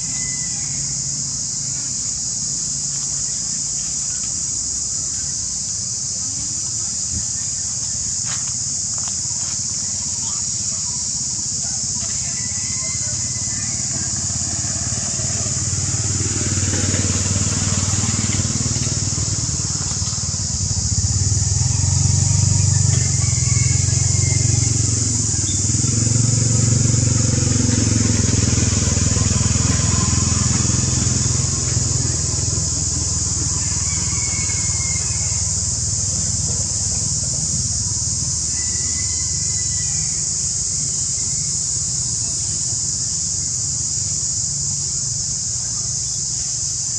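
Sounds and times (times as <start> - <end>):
high-pitched hiss: 0.0 - 46.9
vehicle engine passing by: 11.8 - 45.6.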